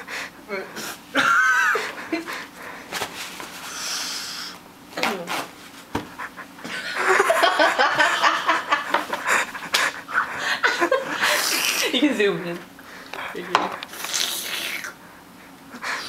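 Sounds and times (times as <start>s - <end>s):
woman panting and gasping: 9.2s - 11.9s.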